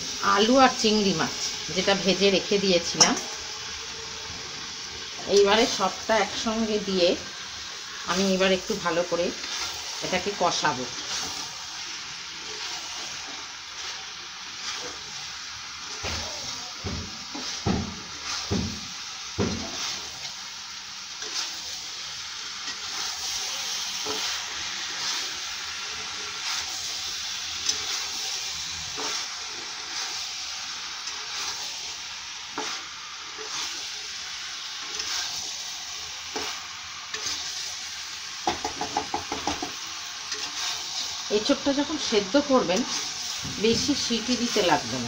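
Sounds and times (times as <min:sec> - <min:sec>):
food sizzling in oil: 0:00.0 - 0:45.0
spatula stirring and scraping: 0:09.2 - 0:20.4, 0:21.1 - 0:22.0, 0:22.6 - 0:30.3, 0:32.5 - 0:34.0, 0:34.8 - 0:35.5, 0:36.3 - 0:37.7.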